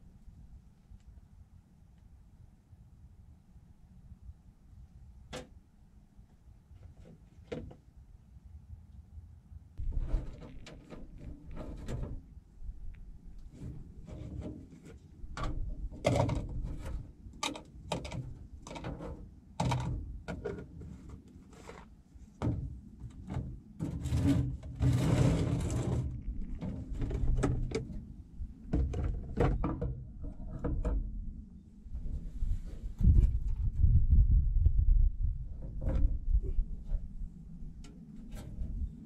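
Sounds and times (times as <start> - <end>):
scraping on steel deck: 9.8 - 12.2, 23.8 - 28.0.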